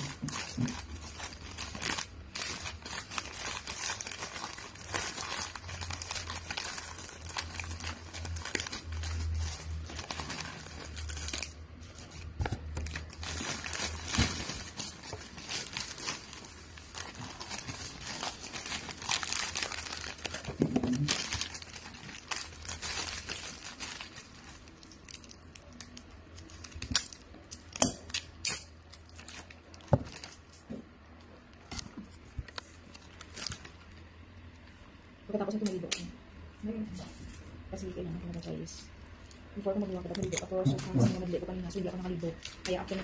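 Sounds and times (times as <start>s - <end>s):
wrapping paper crinkling: 0.0s - 30.7s, 31.6s - 34.2s
sharp snaps and clicks: 27.0s - 28.7s, 35.5s - 36.1s.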